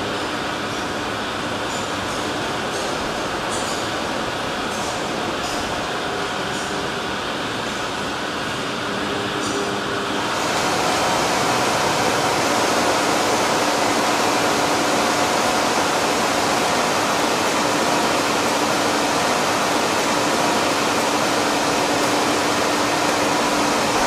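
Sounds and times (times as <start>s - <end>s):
gas burners rushing: 10.2s - 24.0s.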